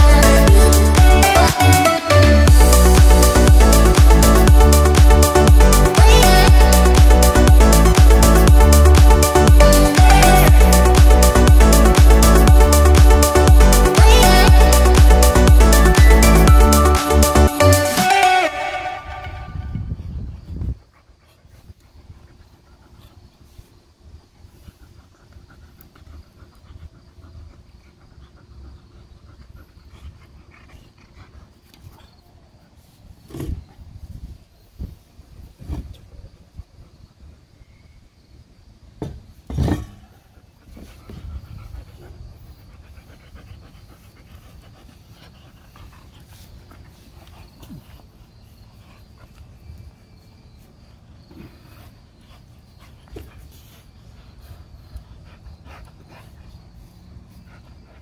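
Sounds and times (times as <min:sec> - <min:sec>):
insects chirping: 0:14.8 - 0:58.0
large dog panting: 0:20.2 - 0:33.3, 0:39.8 - 0:58.0.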